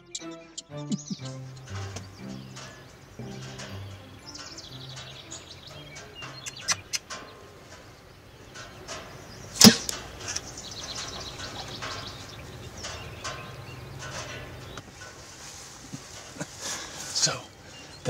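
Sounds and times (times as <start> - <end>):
birds chirping: 0.0 - 18.0
small clicks: 0.9 - 7.9.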